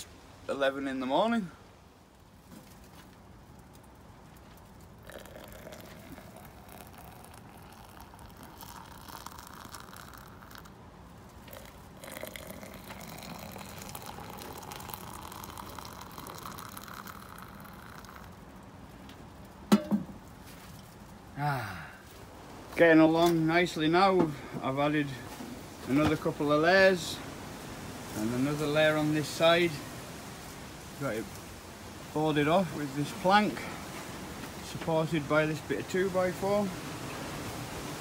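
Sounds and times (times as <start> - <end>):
coffee pouring into metal tumbler: 4.9 - 18.4.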